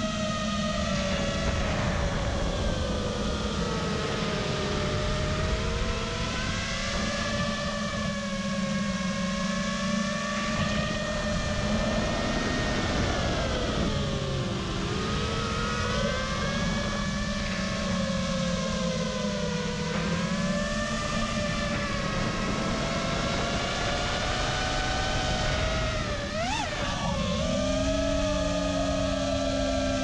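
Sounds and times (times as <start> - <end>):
drone motors whining: 0.0 - 30.0
wind rush: 0.7 - 8.6.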